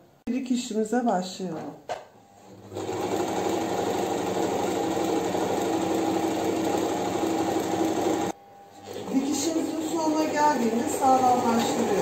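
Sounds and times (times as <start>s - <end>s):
sewing machine running: 2.5s - 12.0s.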